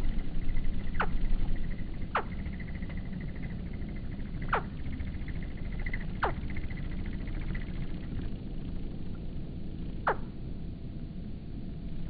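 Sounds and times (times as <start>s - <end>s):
slowed hummingbird squeaks: 0.0s - 9.0s
low rumble: 0.0s - 12.0s.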